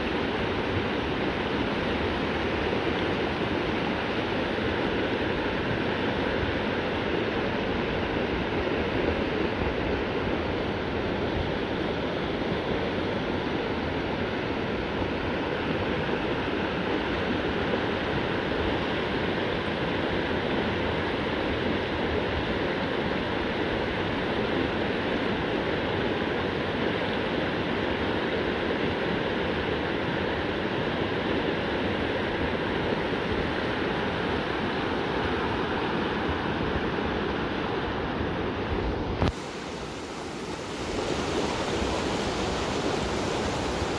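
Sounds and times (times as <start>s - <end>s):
quiet water sound: 0.0s - 43.9s
river rapids rushing over rocks: 25.1s - 43.9s.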